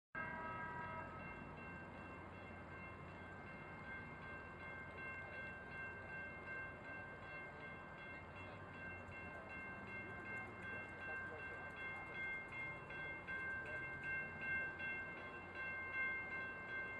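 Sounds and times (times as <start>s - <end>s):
train horn: 0.2s - 1.4s.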